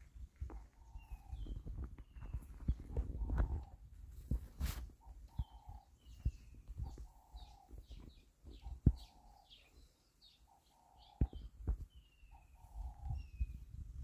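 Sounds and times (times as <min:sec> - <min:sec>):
small birds chirping: 0:00.0 - 0:14.0
dove cooing: 0:00.8 - 0:03.9, 0:05.0 - 0:09.7.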